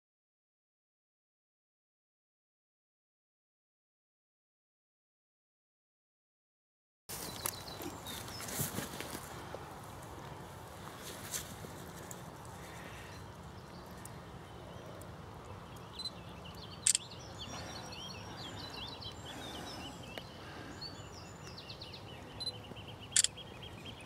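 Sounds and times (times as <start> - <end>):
songbird chirping: 7.1 - 24.0
sharp clicks: 15.4 - 17.2.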